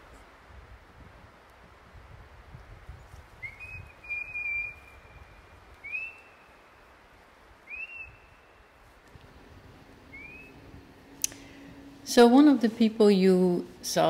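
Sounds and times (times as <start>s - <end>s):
rising whistled notes: 3.4s - 6.8s, 7.7s - 8.6s, 10.1s - 10.6s
faint low rumble: 4.7s - 14.0s.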